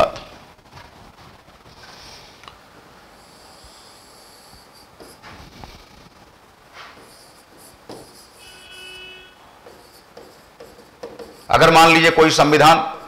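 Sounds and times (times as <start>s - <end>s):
chalk scratching on a blackboard: 3.2s - 6.1s, 6.8s - 12.1s.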